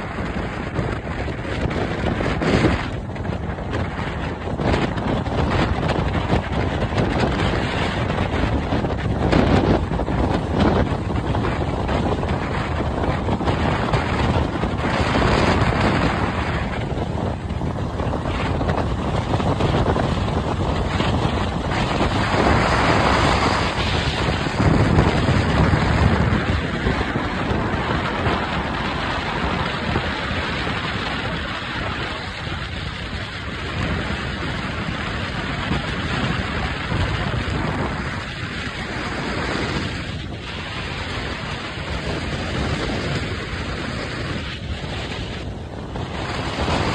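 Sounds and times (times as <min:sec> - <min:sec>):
car road and wind noise: 0:00.0 - 0:46.9.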